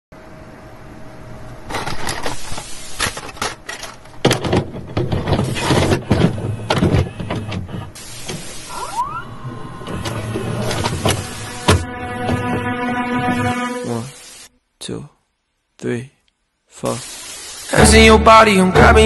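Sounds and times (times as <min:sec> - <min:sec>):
distorted static bursts: 0:05.3 - 0:12.4, 0:13.2 - 0:14.5, 0:16.8 - 0:18.5.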